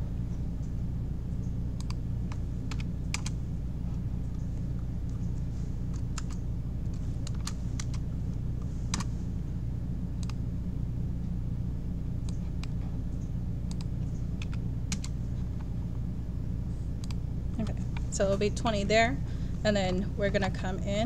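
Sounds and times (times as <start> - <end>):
steady low hum: 0.0 - 21.0
computer keyboard typing: 1.8 - 3.4, 5.1 - 8.0, 13.7 - 15.2.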